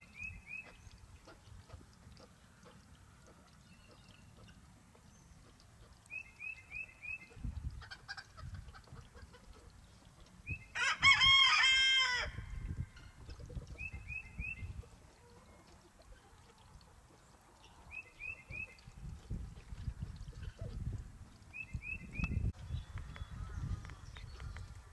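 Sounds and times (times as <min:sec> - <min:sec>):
rooster crowing: 0:10.8 - 0:12.4.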